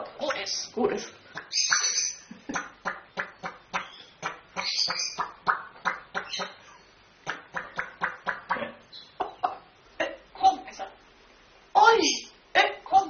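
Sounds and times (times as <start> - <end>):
parrot high calls: 1.4 - 2.3, 3.7 - 5.3.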